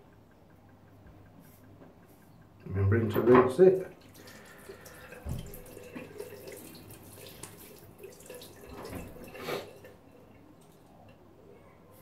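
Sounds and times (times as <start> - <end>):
tap water splashing in sink: 3.3 - 10.0.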